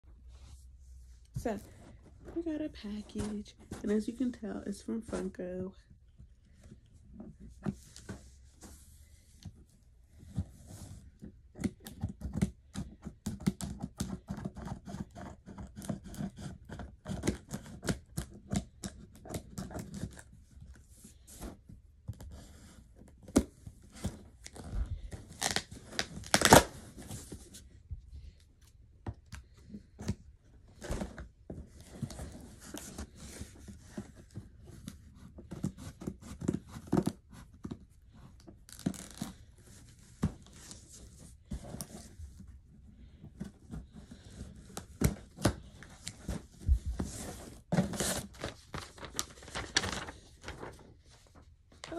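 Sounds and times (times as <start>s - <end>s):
cardboard crinkling: 23.3s - 27.7s, 43.0s - 51.9s
tape tearing: 25.3s - 26.8s, 38.7s - 39.4s
scissors cutting packing tape: 25.4s - 26.7s.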